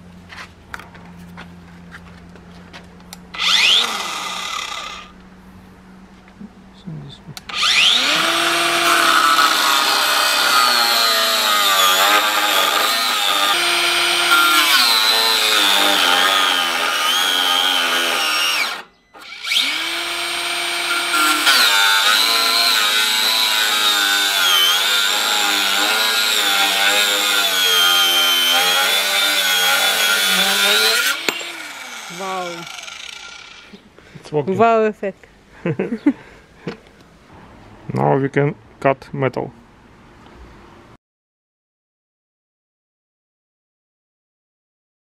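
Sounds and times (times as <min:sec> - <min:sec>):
angle grinder cutting steel: 0:03.3 - 0:05.2, 0:07.5 - 0:33.8.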